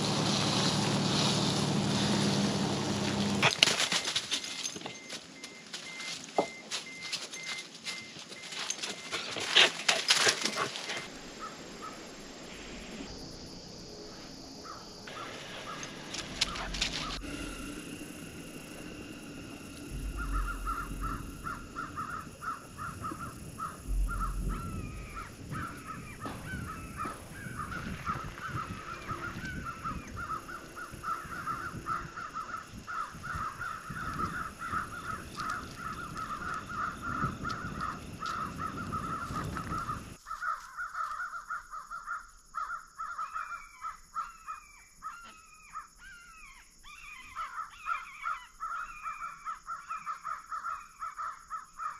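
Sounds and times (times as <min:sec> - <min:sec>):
low rumbling noise: 0:11.1 - 0:33.6
flock of birds calling: 0:14.6 - 0:41.8.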